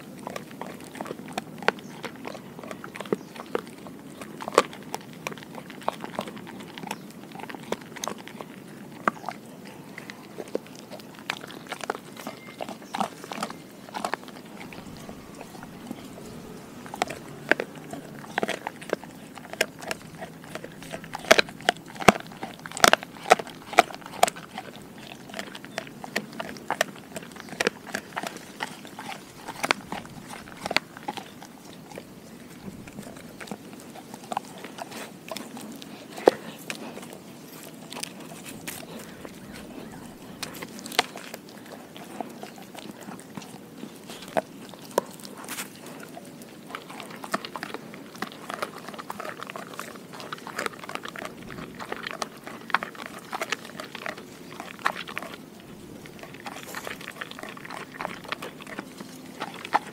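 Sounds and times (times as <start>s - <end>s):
dog gnawing and crunching food: 0.0s - 59.9s.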